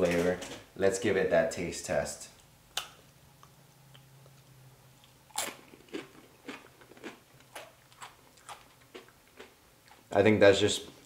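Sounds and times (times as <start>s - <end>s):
person chewing crunchy food: 3.4s - 10.1s.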